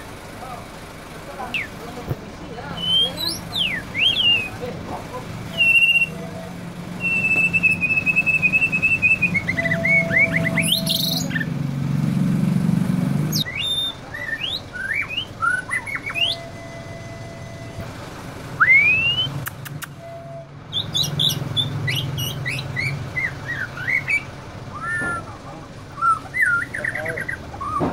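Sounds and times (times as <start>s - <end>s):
songbird whistling song: 1.5s - 1.8s, 2.7s - 4.7s, 5.5s - 11.6s, 13.3s - 17.8s, 18.6s - 25.4s, 26.0s - 27.9s.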